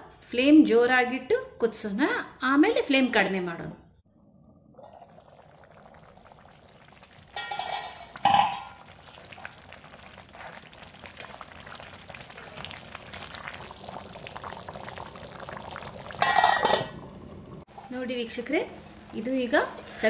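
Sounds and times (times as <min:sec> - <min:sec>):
water boiling with bubbling hiss: 0:04.5 - 0:20.0.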